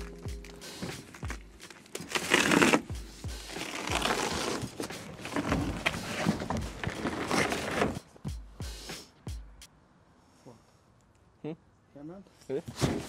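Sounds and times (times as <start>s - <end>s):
cardboard scraping and crinkling: 0.0s - 2.9s, 3.5s - 8.0s, 12.6s - 13.0s
background music with a beat: 0.0s - 9.7s.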